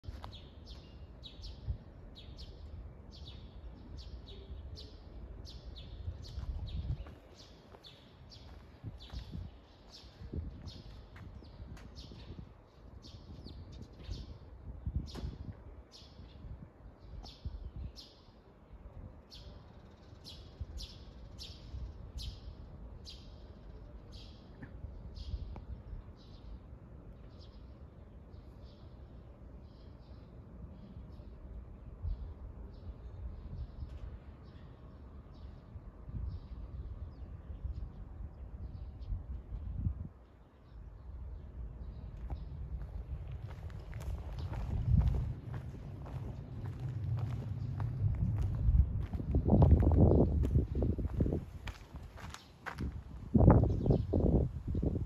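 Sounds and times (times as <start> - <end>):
steady low rumble: 35.6 - 55.0.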